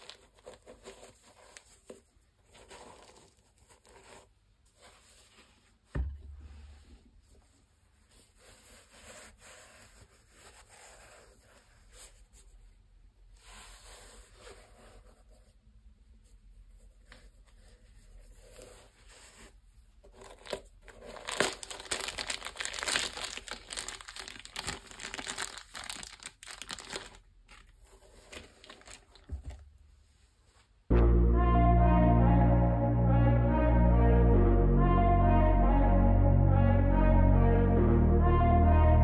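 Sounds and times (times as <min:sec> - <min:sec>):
plastic bag crinkling: 0:20.3 - 0:29.6.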